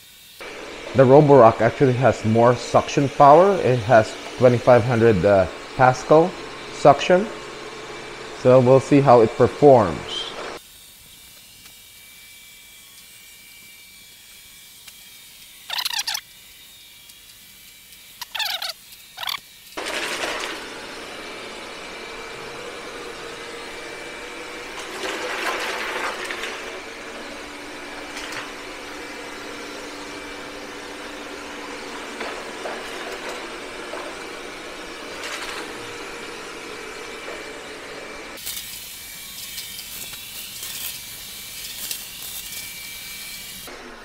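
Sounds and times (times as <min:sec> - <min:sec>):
robot vacuum whirring: 0:00.0 - 0:44.0.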